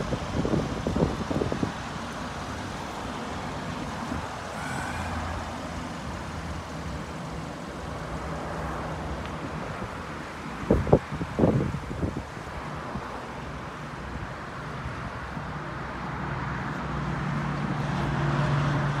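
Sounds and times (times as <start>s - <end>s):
low buffeting: 0.0s - 8.4s
faint engine hum: 0.0s - 19.0s
traffic rumble: 0.0s - 19.0s.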